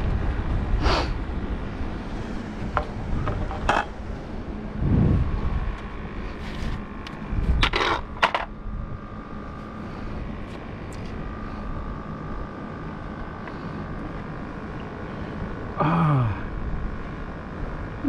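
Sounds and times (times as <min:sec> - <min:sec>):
faint steady hum: 0:00.0 - 0:18.0
steady outdoor rush: 0:00.0 - 0:18.0
plastic board clattering on concrete: 0:07.6 - 0:08.5.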